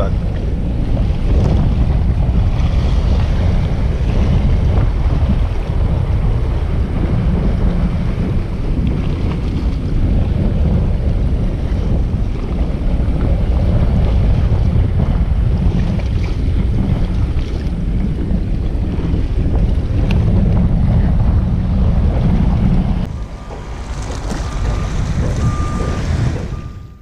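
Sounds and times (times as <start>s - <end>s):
waves washing against rocks: 0.0s - 26.9s
wind buffeting microphone: 0.0s - 27.0s.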